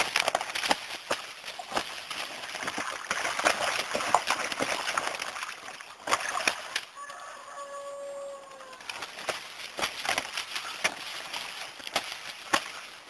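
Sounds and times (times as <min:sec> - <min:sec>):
water splashing: 0:00.0 - 0:13.0
wings flapping: 0:08.6 - 0:13.0.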